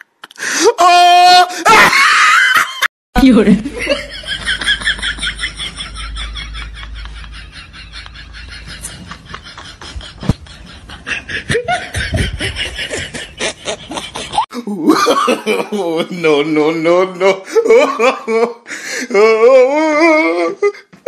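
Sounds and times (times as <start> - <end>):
person laughing: 3.5 - 16.0.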